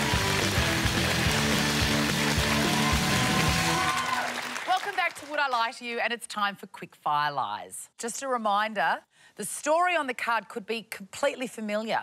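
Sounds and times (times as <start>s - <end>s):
steady drum beat: 0.0s - 3.8s
television theme music: 0.0s - 4.9s.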